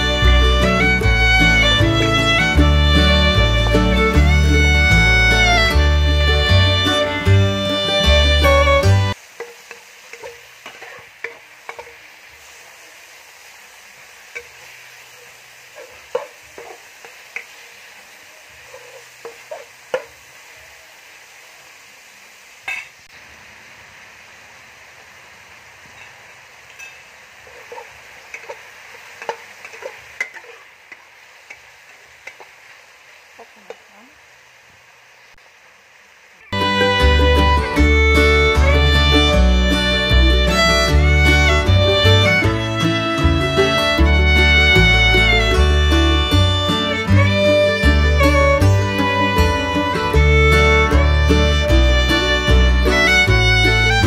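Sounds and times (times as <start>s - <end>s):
meat sizzling in a wok: 0.0s - 54.0s
metal ladle scraping pan: 9.4s - 12.0s, 15.8s - 16.9s, 18.6s - 20.1s.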